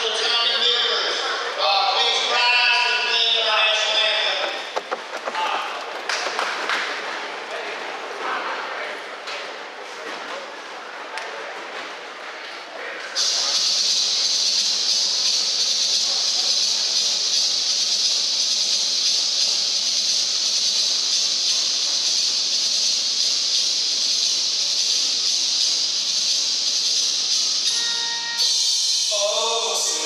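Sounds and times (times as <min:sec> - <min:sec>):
loud electronic hiss: 0:13.2 - 0:30.0.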